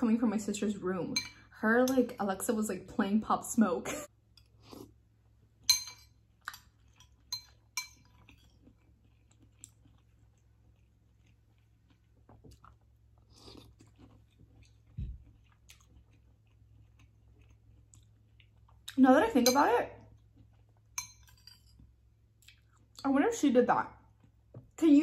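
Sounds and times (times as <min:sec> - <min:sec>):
spoon clinking against bowl: 0:05.7 - 0:06.1, 0:07.3 - 0:08.0, 0:19.4 - 0:19.7, 0:21.0 - 0:21.7
chewing and mouth sounds: 0:06.3 - 0:19.0, 0:20.0 - 0:23.1, 0:24.0 - 0:24.5.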